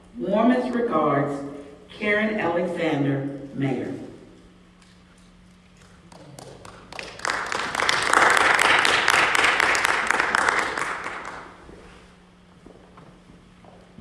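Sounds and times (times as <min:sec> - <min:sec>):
people clapping: 0:05.8 - 0:11.9.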